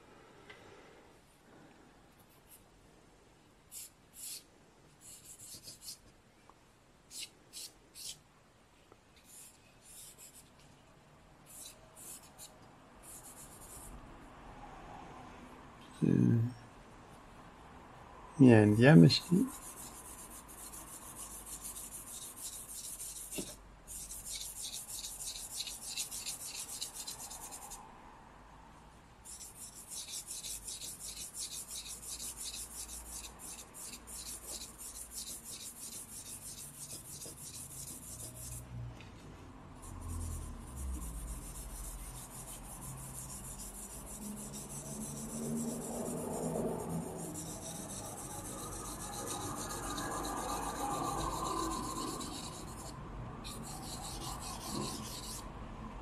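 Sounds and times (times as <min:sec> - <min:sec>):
charcoal scratching on paper: 0:03.7 - 0:06.0, 0:07.1 - 0:08.2, 0:09.2 - 0:10.6, 0:11.5 - 0:14.0, 0:19.0 - 0:27.8, 0:29.2 - 0:38.6, 0:39.8 - 0:55.5.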